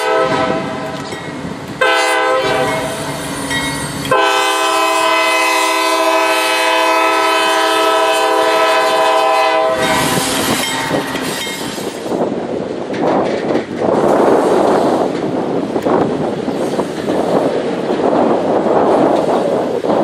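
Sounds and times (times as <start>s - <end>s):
locomotive air horn blasts: 0.0s - 0.9s, 1.8s - 3.1s, 4.1s - 11.2s
train rumble: 0.0s - 20.0s
train wheels clattering over rails: 9.2s - 20.0s.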